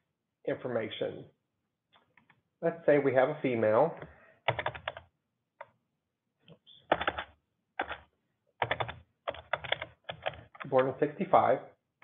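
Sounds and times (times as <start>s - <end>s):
computer keyboard typing: 4.5s - 5.7s, 6.9s - 10.9s.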